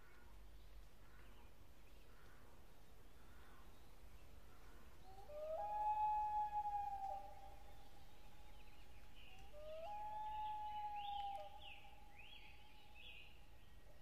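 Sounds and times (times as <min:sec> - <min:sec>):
long wailing calls: 0:05.0 - 0:13.4.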